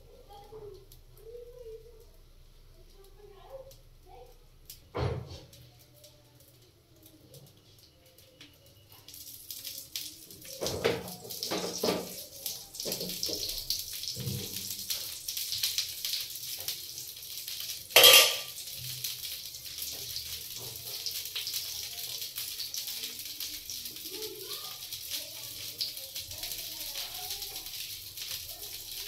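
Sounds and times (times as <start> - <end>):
batter sizzling in oil: 0.0 - 29.0
steel spoon knocking on pan: 18.0 - 18.6.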